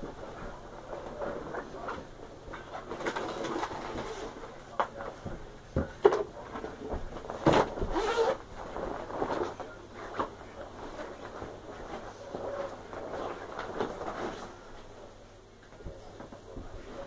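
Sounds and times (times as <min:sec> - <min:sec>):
clothing and cloth bag rustling: 0:06.5 - 0:15.0.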